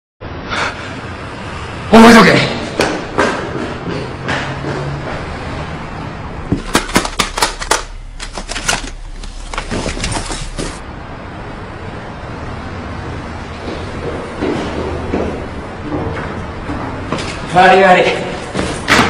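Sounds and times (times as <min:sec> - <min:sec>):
steady background noise: 0:00.2 - 0:19.0
cd cases clacking: 0:06.7 - 0:10.3.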